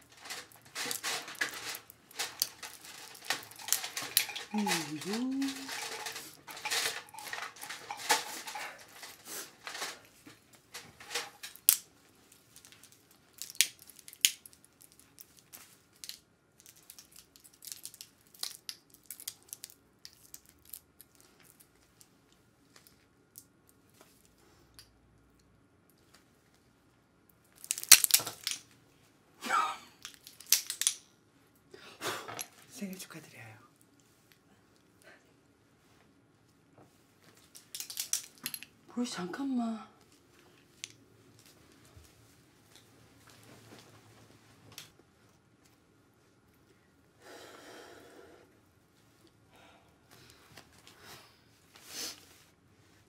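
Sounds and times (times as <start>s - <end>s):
metal tools clicking and clinking: 0.0s - 10.1s, 10.7s - 11.8s, 30.0s - 31.1s, 37.5s - 38.7s.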